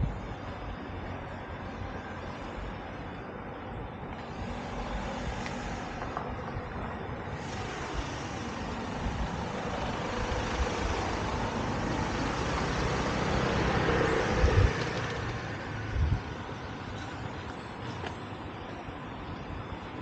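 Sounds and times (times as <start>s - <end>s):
vehicle driving past: 7.4s - 16.2s.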